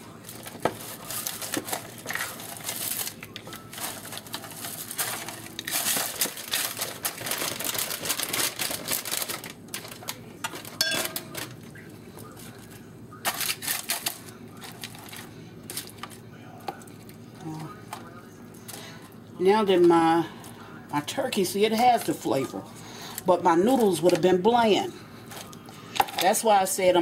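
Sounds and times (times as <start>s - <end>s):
dry noodles rustling and crackling: 0.0s - 18.0s.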